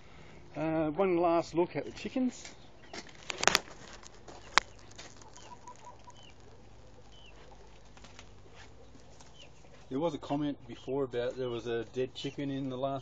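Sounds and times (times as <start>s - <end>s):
hens clucking softly: 4.3s - 9.9s
faint high chirps: 4.4s - 9.8s.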